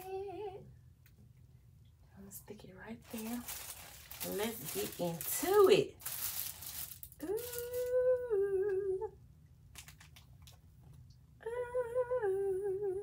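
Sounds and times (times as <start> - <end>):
woman humming: 0.0 - 0.6, 7.2 - 9.2, 11.4 - 13.0.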